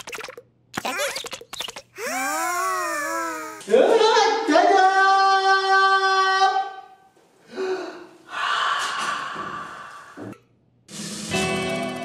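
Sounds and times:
person breathy vocal sounds: 2.0s - 3.7s, 7.5s - 10.2s
music: 10.9s - 12.0s.

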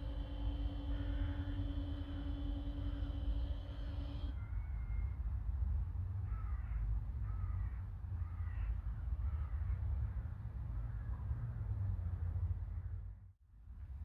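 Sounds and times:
steady low rumble: 0.0s - 4.5s.

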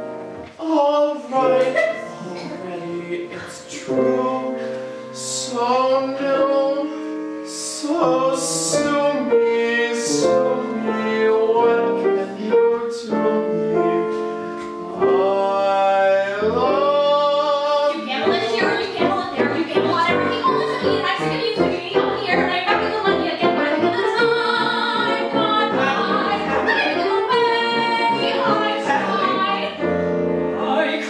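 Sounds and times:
grand piano: 0.0s - 31.0s
woman singing operatically: 17.7s - 29.8s.

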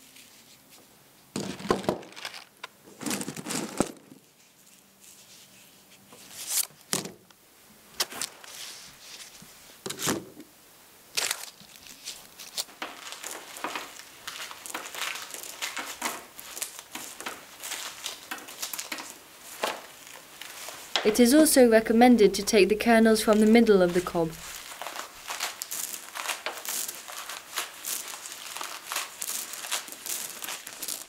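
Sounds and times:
corn kernels crackling: 1.4s - 4.4s, 11.1s - 31.0s.

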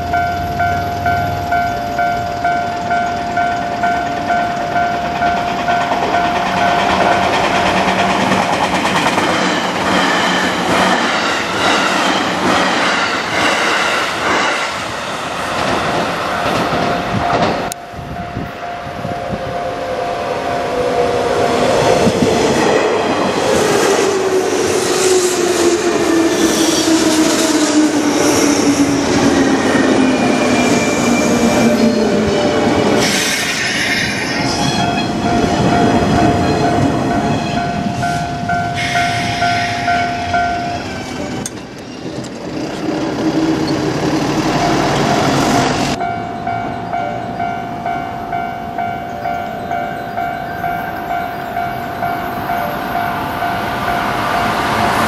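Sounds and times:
level-crossing alarm bell dinging: 0.0s - 8.5s, 34.4s - 41.6s, 44.4s - 55.0s
train wheels clattering: 2.0s - 17.8s.

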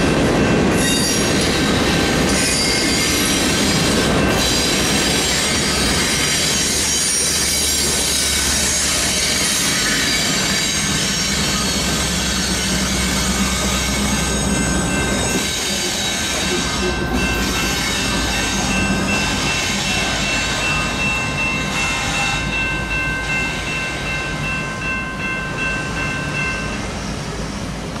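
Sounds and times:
crossing warning bell ringing: 0.0s - 27.4s
freight train rumbling: 0.0s - 28.0s.

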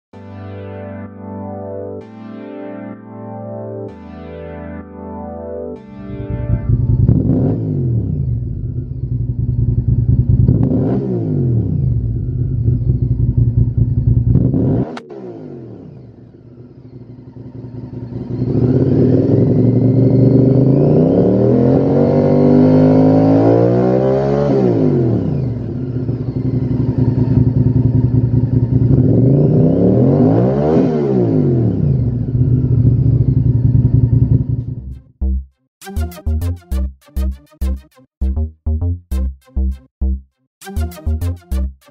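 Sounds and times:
motorcycle engine revving: 6.2s - 35.2s
sharp click: 14.8s - 15.1s.

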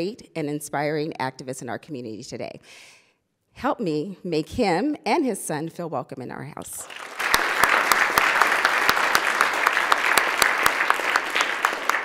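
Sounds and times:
crowd applause: 6.8s - 12.0s
sharp claps close by: 6.9s - 12.0s.

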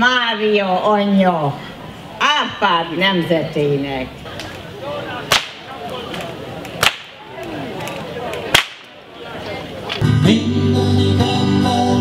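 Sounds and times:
faint voices murmuring: 3.2s - 10.0s
whip cracks: 5.3s - 5.6s, 6.8s - 7.2s, 8.5s - 9.0s.

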